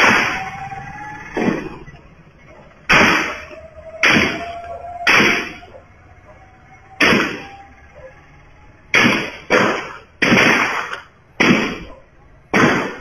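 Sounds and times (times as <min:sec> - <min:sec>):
rifle gunshots with echo: 0:02.9 - 0:05.7.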